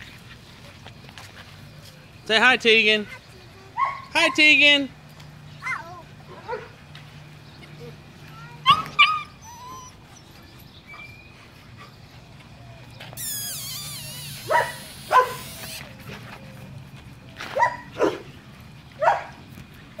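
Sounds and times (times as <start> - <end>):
puppy yipping: 8.6 - 10.0, 13.2 - 15.9
puppy whining: 8.6 - 11.5, 12.6 - 16.7.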